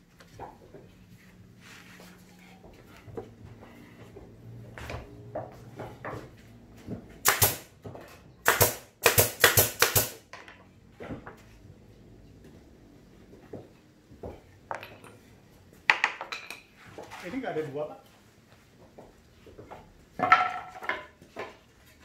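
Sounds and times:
nail gun firing: 0:07.2 - 0:07.7, 0:08.4 - 0:10.3
plywood panels knocking: 0:20.2 - 0:21.6.

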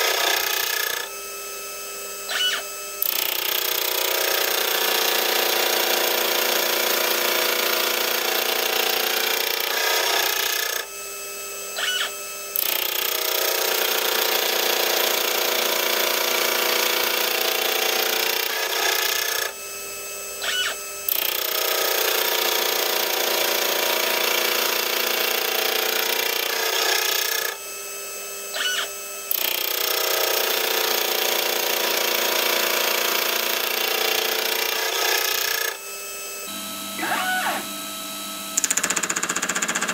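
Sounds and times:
rotary table whine: 0:00.0 - 0:06.1, 0:08.2 - 0:14.8, 0:17.6 - 0:22.0, 0:28.4 - 0:29.1, 0:36.4 - 0:39.9
gear cutter cutting metal: 0:00.0 - 0:39.9.

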